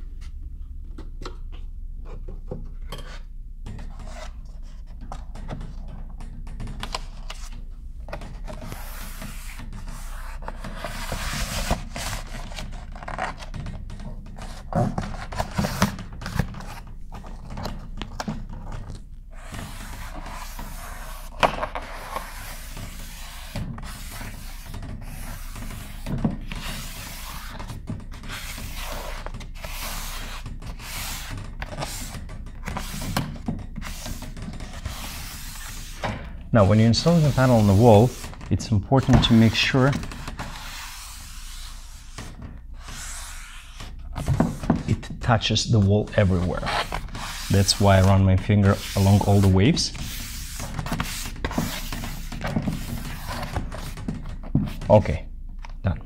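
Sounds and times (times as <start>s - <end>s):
hands scraping and brushing panel: 18.7s - 45.1s, 45.8s - 55.0s.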